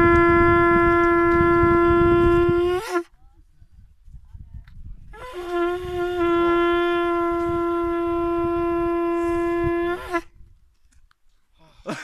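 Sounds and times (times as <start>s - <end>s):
conch shell blown: 0.0s - 3.1s, 5.2s - 10.4s.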